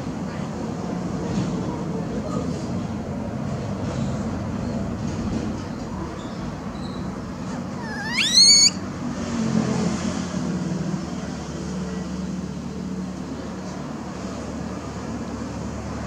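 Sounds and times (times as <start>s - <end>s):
infant monkey squealing: 7.8s - 8.8s.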